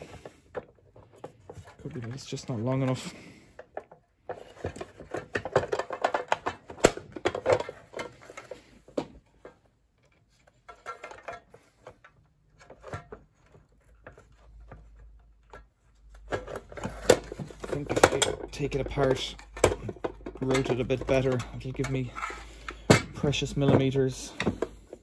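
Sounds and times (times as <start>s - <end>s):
small parts clicking and rattling: 0.0s - 25.0s.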